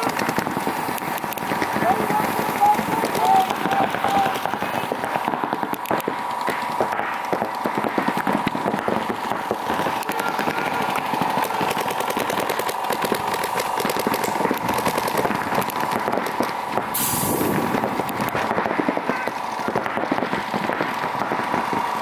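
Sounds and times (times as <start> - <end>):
paintball markers firing: 0.0 - 22.0
steady high tone: 6.6 - 13.3
air hiss burst: 16.9 - 17.9.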